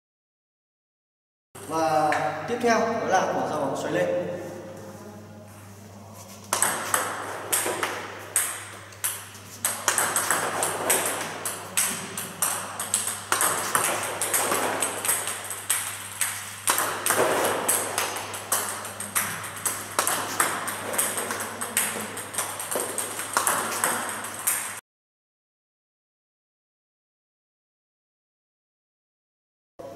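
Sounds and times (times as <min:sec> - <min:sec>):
table tennis ball clicking: 0:06.5 - 0:24.8.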